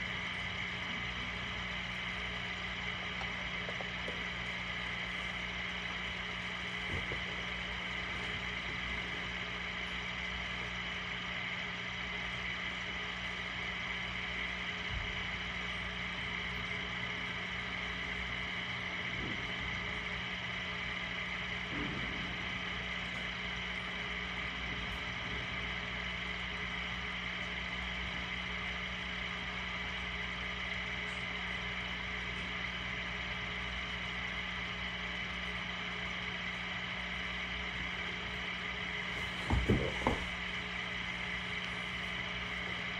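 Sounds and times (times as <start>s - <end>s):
small motor humming: 0.0s - 42.9s
faint low thump: 39.2s - 40.4s.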